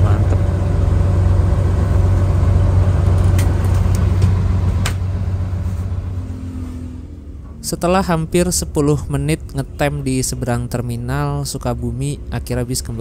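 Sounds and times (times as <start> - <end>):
bus diesel engine idling: 0.0 - 6.3.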